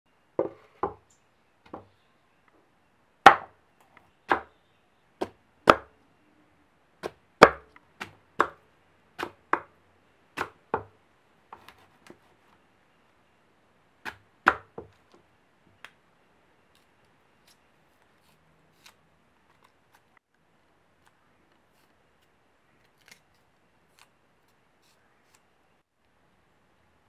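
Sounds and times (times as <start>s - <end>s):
knife chopping on wooden board: 3.3s - 3.5s, 4.3s - 4.6s, 5.2s - 5.9s, 7.0s - 8.6s, 9.2s - 9.7s, 10.4s - 10.9s, 14.0s - 14.9s.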